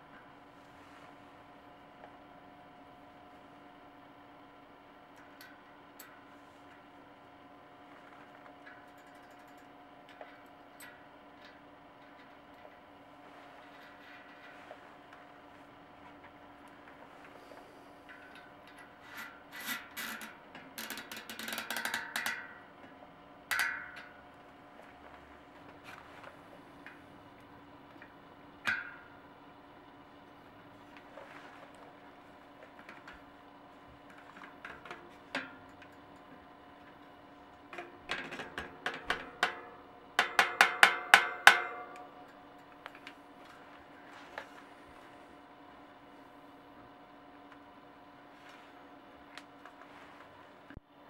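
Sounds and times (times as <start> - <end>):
metal rubbing and clicking: 18.1 - 22.6.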